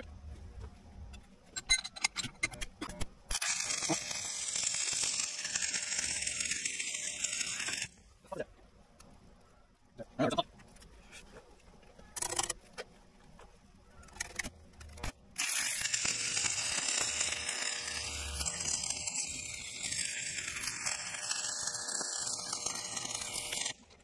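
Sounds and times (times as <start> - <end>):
welding arc crackling: 2.4 - 9.5, 14.2 - 24.0.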